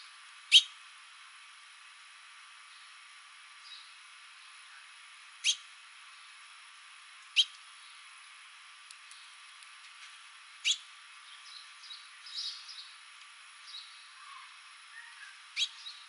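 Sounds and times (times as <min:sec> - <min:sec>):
finches chirping: 0:00.5 - 0:00.7, 0:05.4 - 0:05.6, 0:07.3 - 0:08.0, 0:10.6 - 0:13.0, 0:13.6 - 0:16.0.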